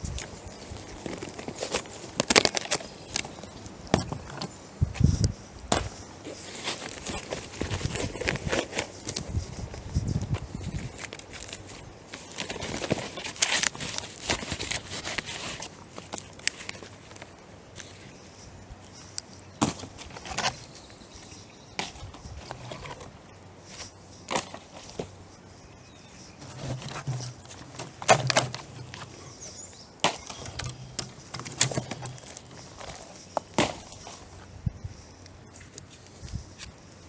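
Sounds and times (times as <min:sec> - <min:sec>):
twigs snapping underfoot: 0:00.0 - 0:04.5, 0:05.1 - 0:18.0, 0:26.4 - 0:34.4
footsteps on sticks and leaves: 0:00.0 - 0:37.0.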